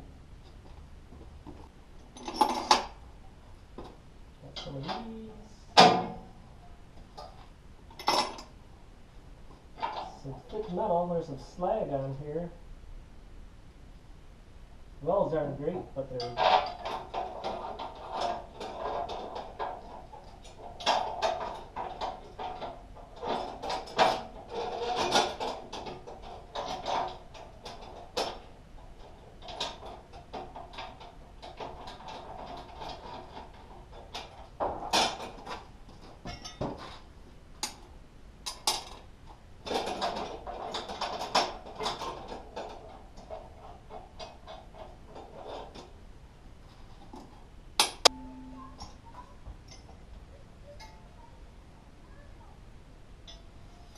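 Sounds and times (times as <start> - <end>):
tools and bolts clinking on metal: 1.5 - 3.0, 7.0 - 8.6, 16.0 - 46.0, 47.1 - 50.1, 50.7 - 51.2, 53.2 - 53.9.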